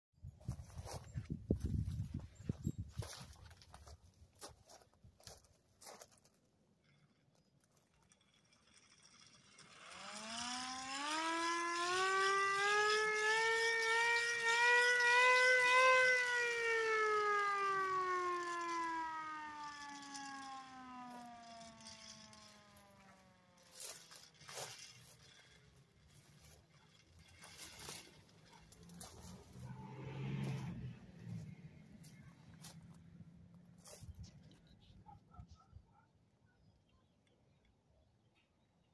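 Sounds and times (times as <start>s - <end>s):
hand-cranked siren wailing: 8.8s - 33.1s.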